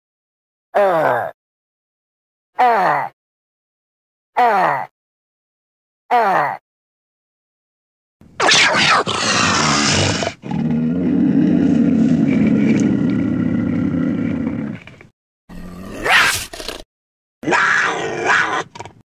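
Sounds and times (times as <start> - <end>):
monster cries: 2.6 - 3.1, 4.4 - 4.9, 8.4 - 14.6, 17.4 - 18.8
low growling monster roar: 8.4 - 16.1, 17.4 - 18.8.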